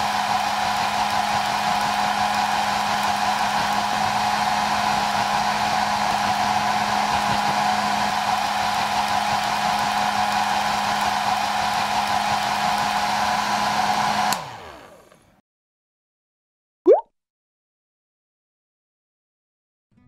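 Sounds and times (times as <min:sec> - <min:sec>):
hair dryer running: 0:00.0 - 0:15.4.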